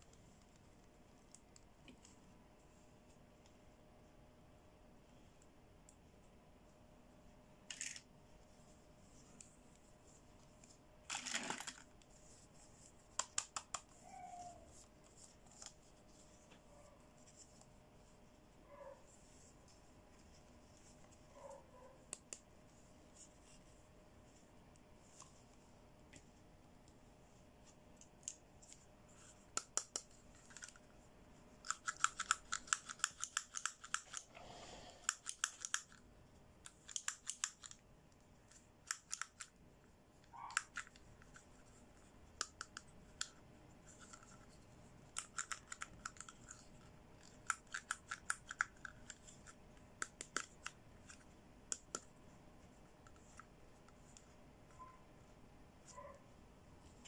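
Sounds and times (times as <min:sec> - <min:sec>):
plastic toy pieces clicking: 0:31.6 - 0:34.3, 0:35.0 - 0:36.0, 0:36.7 - 0:37.8.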